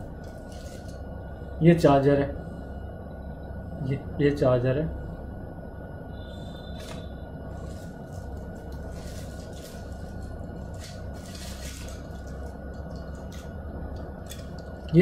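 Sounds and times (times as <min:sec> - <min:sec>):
faint steady tone: 0:00.0 - 0:11.3
low hum: 0:00.0 - 0:15.0.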